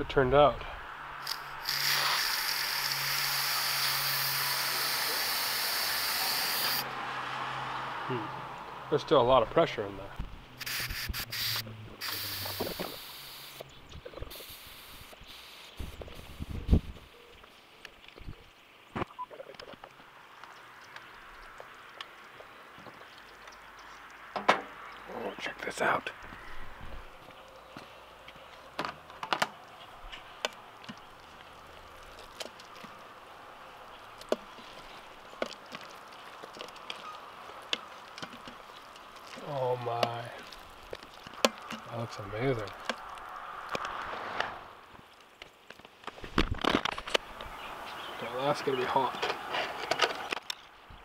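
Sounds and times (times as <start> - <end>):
pressure cooker steam hissing: 1.2 - 6.8, 10.6 - 13.6
faint steady hiss: 10.1 - 24.2
knocks and clunks: 24.4 - 24.8.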